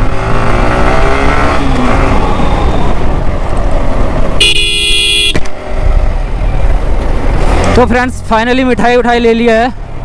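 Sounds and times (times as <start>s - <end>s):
vehicle horn blast: 4.4s - 5.4s.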